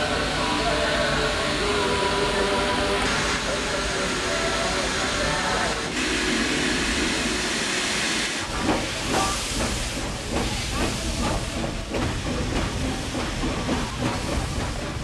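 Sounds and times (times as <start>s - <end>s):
steam locomotive hissing: 0.0s - 15.0s
train chugging beat: 8.5s - 15.0s.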